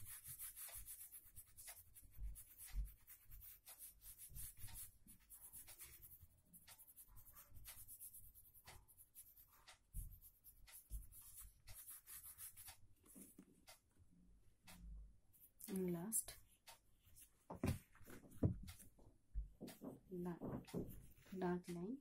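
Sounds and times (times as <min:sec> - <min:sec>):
pencil shading on paper: 0:00.0 - 0:13.8.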